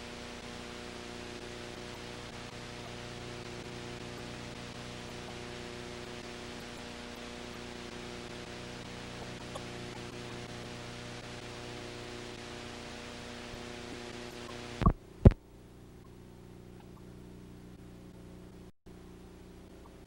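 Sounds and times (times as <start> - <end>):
steady hiss: 0.0 - 15.4
low electrical hum: 0.0 - 20.0.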